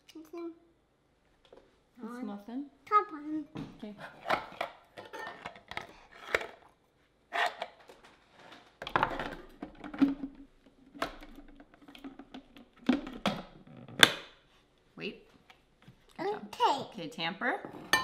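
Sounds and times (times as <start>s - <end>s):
plastic lid knocking and clicking: 8.9s - 14.3s.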